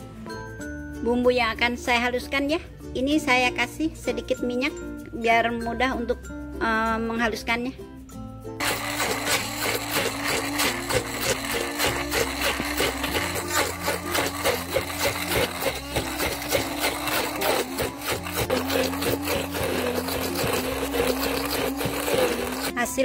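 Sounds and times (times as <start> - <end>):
stick blender grinding: 8.6 - 23.0.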